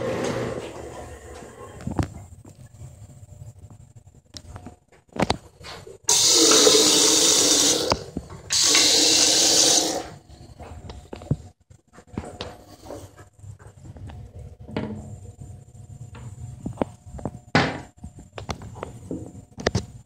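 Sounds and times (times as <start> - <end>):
faucet running into sink: 6.1 - 10.2.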